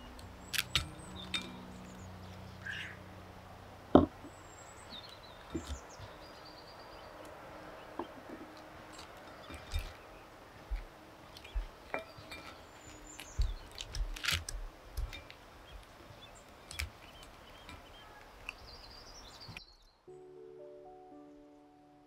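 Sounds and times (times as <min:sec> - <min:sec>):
chestnut husks cracking: 0:00.0 - 0:03.0, 0:10.7 - 0:18.9.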